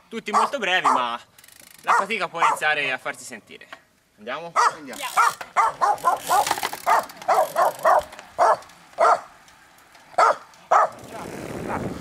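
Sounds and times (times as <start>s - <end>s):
dog barking: 0.3s - 1.1s, 1.9s - 2.6s, 4.6s - 9.3s, 10.2s - 11.0s.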